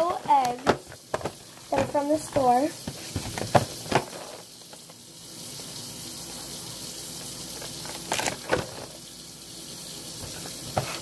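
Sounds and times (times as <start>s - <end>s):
tap running: 0.0s - 5.1s, 10.1s - 11.0s.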